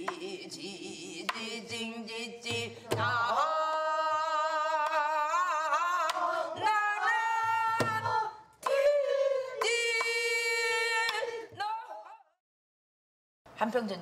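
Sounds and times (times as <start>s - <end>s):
woman singing with vibrato: 0.0s - 12.4s.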